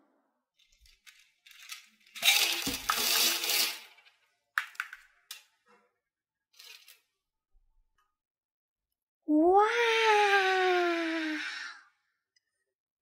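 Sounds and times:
candies clattering onto tabletop: 0:00.6 - 0:05.5.

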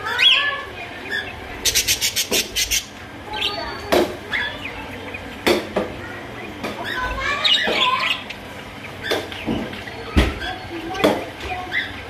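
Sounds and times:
budgerigars chattering and warbling: 0:00.0 - 0:12.0.

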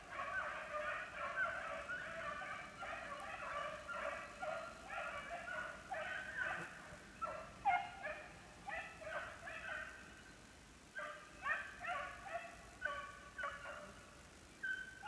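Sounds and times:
hounds baying: 0:00.0 - 0:10.1, 0:11.0 - 0:15.0.

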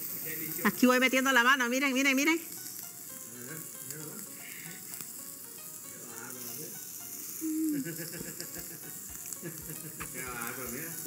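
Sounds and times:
vegetables sizzling in a frying pan: 0:00.0 - 0:11.0
woman humming mm: 0:07.4 - 0:08.1.

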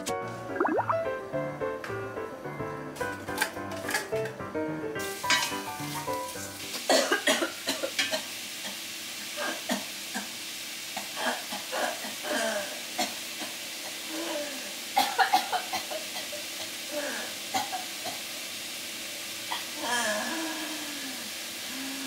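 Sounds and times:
food sizzling in a pot: 0:04.9 - 0:22.0
woman coughing and sputtering: 0:06.9 - 0:07.9.

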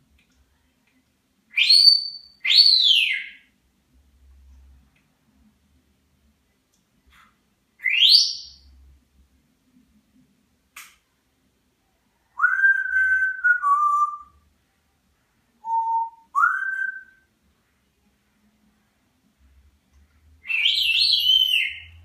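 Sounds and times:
parrot whistling: 0:20.4 - 0:21.9.

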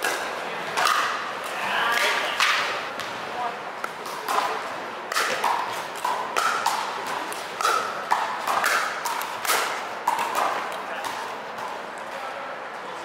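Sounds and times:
paddles striking plastic ball: 0:03.8 - 0:11.7.

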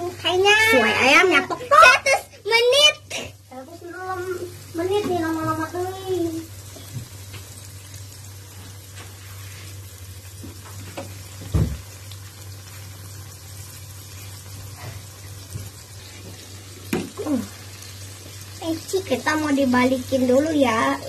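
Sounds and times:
chicken sizzling in oil: 0:00.0 - 0:21.0
dull thump: 0:11.4 - 0:11.8.

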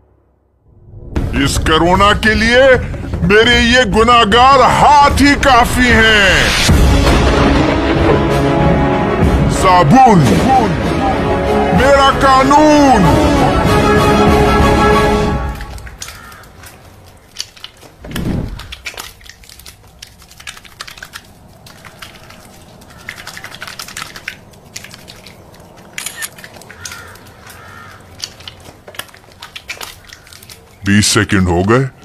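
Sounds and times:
soapy hands rubbing: 0:15.4 - 0:31.0.

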